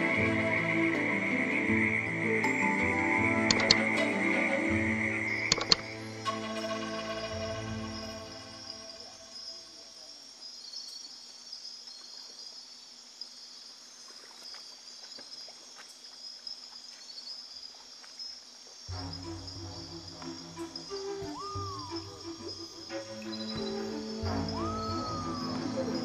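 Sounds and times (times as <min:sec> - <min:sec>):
background music: 0:00.0 - 0:09.6, 0:18.9 - 0:26.0
insect chorus shrilling: 0:00.0 - 0:26.0
faint clicks: 0:03.5 - 0:03.9.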